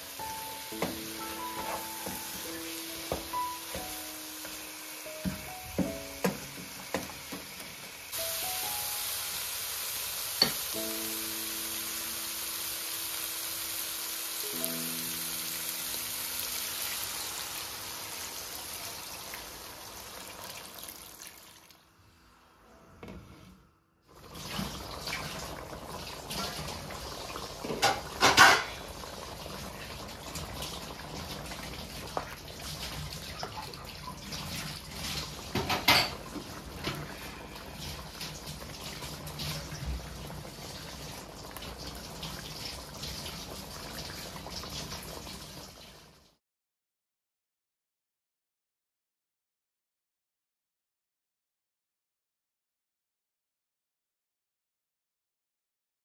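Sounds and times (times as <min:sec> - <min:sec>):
meat sizzling in a wok: 0:00.0 - 0:21.6, 0:24.4 - 0:46.2.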